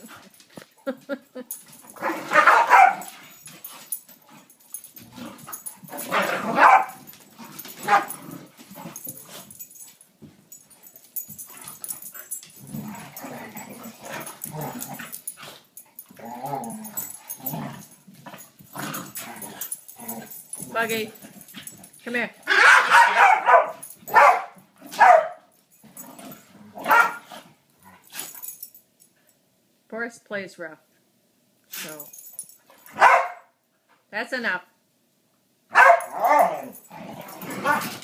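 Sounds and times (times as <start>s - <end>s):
dogs growling and barking: 1.5s - 9.9s, 10.8s - 28.7s, 35.8s - 38.0s.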